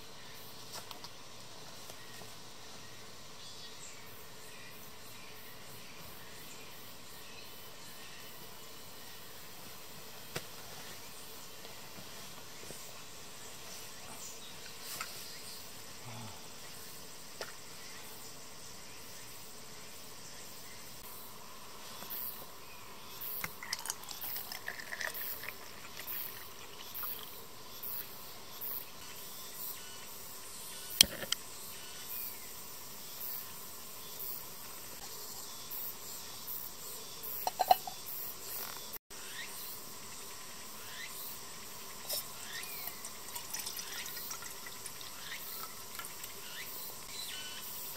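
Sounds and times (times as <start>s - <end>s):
insects chirping: 0.0s - 47.9s
water pouring into metal kettle: 23.4s - 27.3s, 42.2s - 46.4s.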